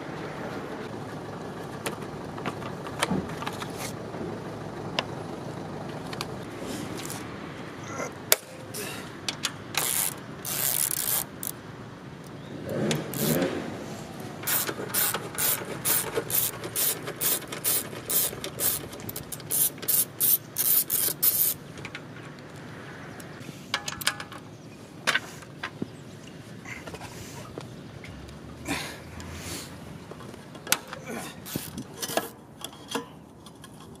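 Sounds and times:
hand ratchet clicking: 9.8 - 11.6, 12.9 - 13.5, 14.4 - 21.6.

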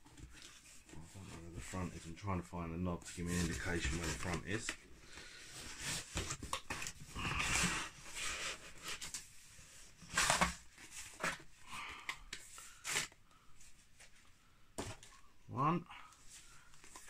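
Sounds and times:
cardboard and plastic bag rustling: 3.0 - 4.8.

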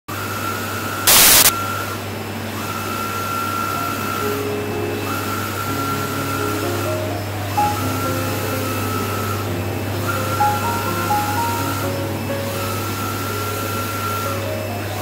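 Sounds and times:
printer low hum: 0.1 - 15.0
printer motor whine: 0.1 - 15.0
stepping motor tones: 0.1 - 15.0
loud burst of hiss: 1.1 - 1.5.

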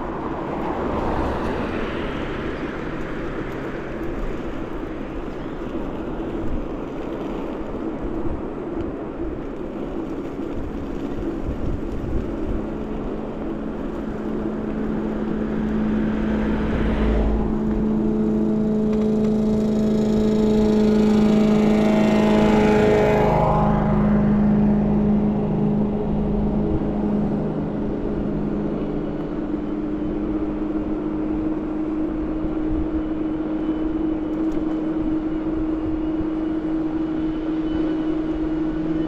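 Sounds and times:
wind and tyre rush: 0.0 - 39.0
electric motor whine: 12.0 - 39.0.

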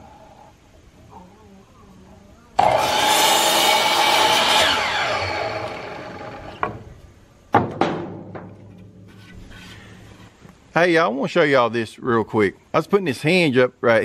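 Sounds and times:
miter saw cutting wood: 2.6 - 6.8
wooden board knocks: 7.5 - 8.9.

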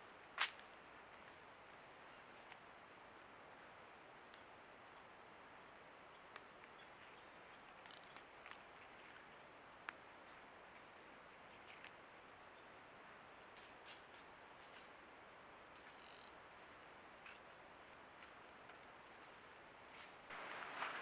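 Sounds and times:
insects trilling: 5.9 - 20.3.

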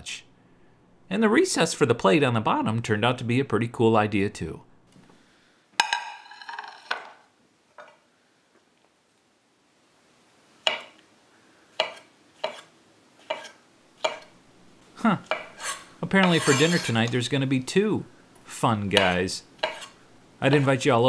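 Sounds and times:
knife slicing onto cutting board: 15.3 - 17.0, 19.6 - 20.0.

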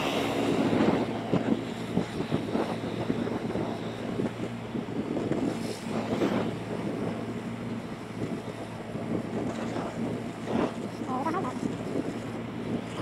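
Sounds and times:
motorbike engine hum: 0.0 - 13.0
wind buffeting microphone: 0.0 - 13.0.

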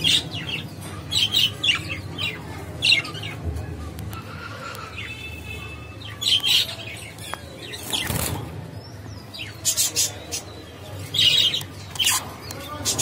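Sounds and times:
budgerigars chirping: 8.9 - 13.0.

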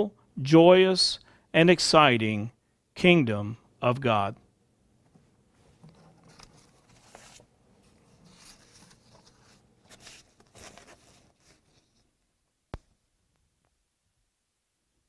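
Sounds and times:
paper sheets rustling: 5.8 - 12.0.

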